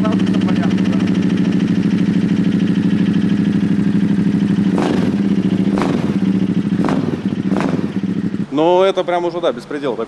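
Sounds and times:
motorcycle engine running: 0:00.0 - 0:10.0
exhaust cracks: 0:03.8 - 0:08.6.

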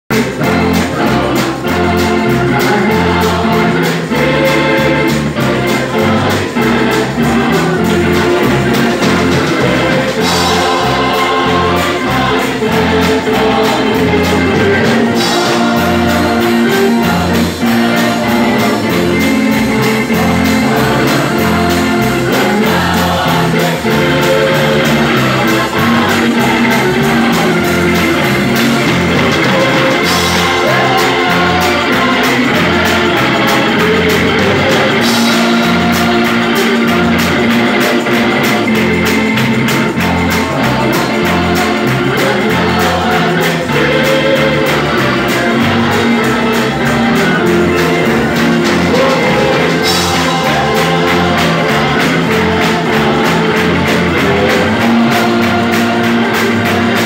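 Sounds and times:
congregation singing: 0:00.0 - 0:57.0
electric organ chords: 0:00.0 - 0:57.0
drum kit: 0:00.1 - 0:57.0.

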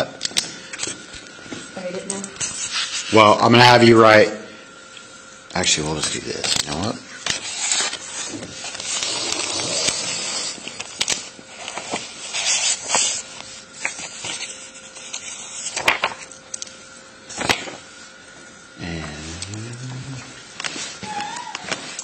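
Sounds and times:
paper rustling: 0:06.4 - 0:18.0.

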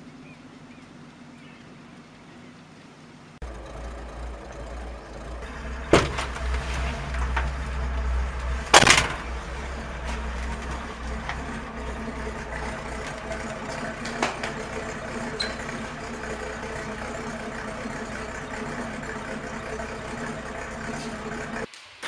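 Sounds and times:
engine low rumble: 0:00.0 - 0:21.7
sharp knocks: 0:05.9 - 0:07.6.

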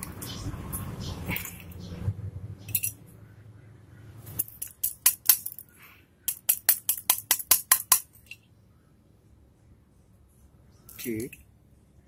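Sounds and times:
sharp metallic taps: 0:06.3 - 0:08.4.

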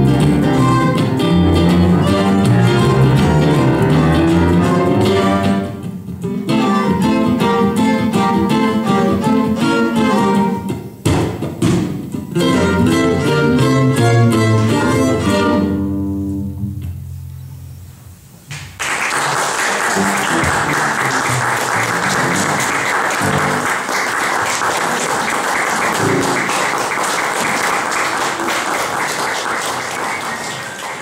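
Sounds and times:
audience applause: 0:01.8 - 0:05.4, 0:18.8 - 0:31.0.

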